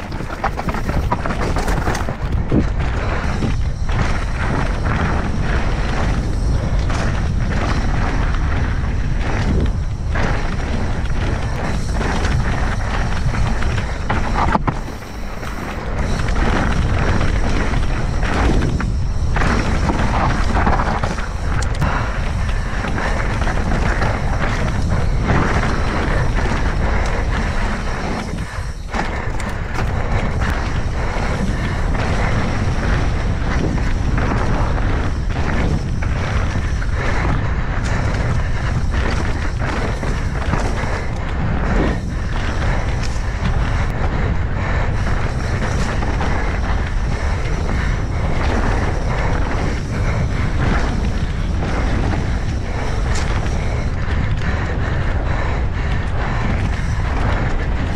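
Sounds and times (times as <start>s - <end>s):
bike knocking over ground: 0.0s - 5.2s
mountain bike rumble and clatter: 0.0s - 57.9s.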